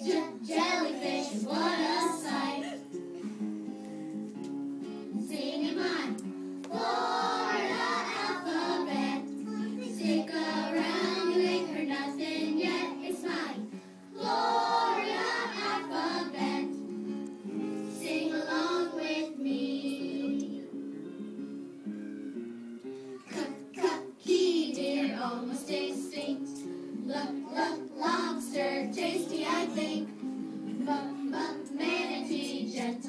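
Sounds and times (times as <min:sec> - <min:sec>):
children singing: 0:00.0 - 0:02.9, 0:05.2 - 0:16.8, 0:17.9 - 0:20.8, 0:23.2 - 0:33.0
instrumental accompaniment: 0:20.1 - 0:24.2.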